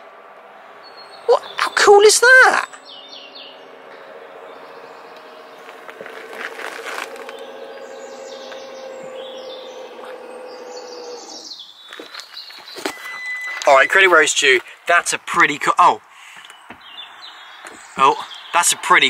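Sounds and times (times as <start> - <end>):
birds chirping: 0.4 - 19.0
electric motor humming: 3.9 - 11.5.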